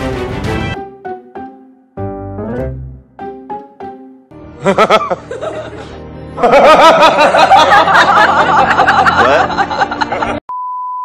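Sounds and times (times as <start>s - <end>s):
music: 0.0s - 10.4s
man cackling with laughter: 4.6s - 10.4s.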